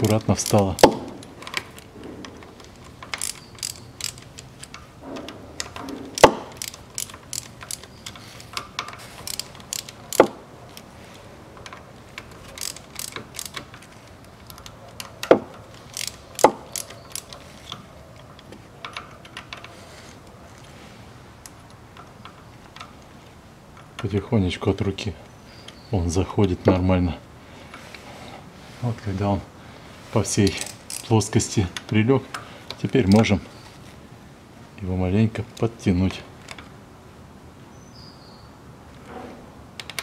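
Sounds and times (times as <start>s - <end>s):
hand ratchet clicking: 0.0s - 4.8s, 5.6s - 10.4s, 11.6s - 17.4s, 30.5s - 33.2s.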